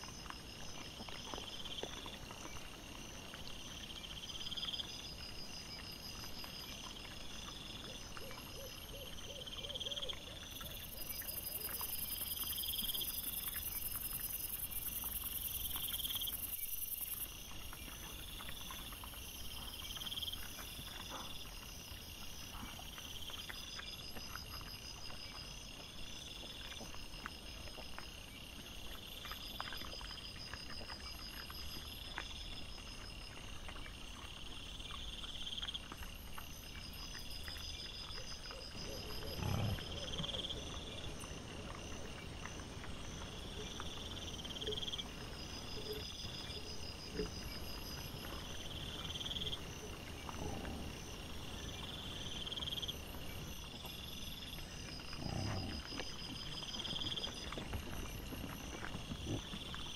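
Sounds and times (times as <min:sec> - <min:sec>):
boars rooting and crunching: 0:00.0 - 0:59.9
night insects chirping: 0:00.0 - 0:59.9
low boar grunt: 0:38.8 - 0:40.6, 0:50.2 - 0:51.3, 0:55.0 - 0:56.1.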